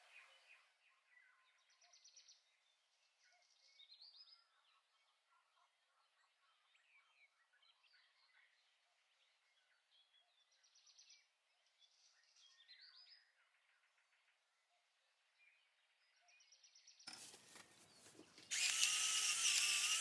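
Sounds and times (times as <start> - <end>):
pepper grinder whirring: 18.4 - 20.0.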